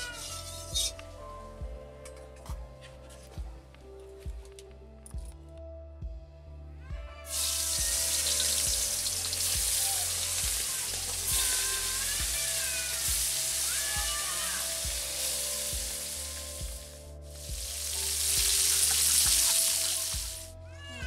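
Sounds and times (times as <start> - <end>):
fish sizzling in hot oil: 7.3 - 20.5.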